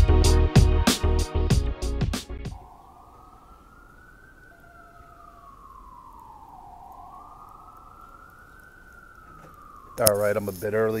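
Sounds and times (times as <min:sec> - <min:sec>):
emergency siren wailing: 0:02.5 - 0:11.0.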